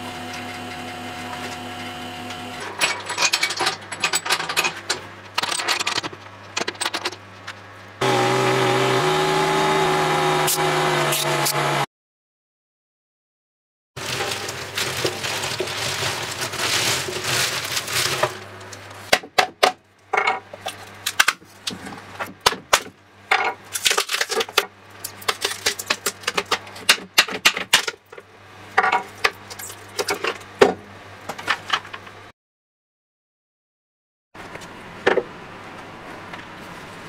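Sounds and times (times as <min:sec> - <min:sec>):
plastic cracking and crinkling: 0:14.0 - 0:19.0, 0:23.7 - 0:26.8.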